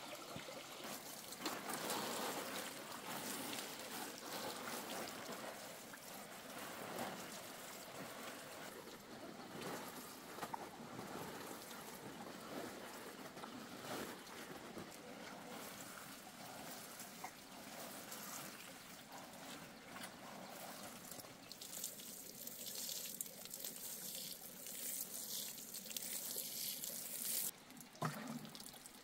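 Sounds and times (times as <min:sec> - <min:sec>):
watering can spraying onto soil: 0:20.6 - 0:27.5.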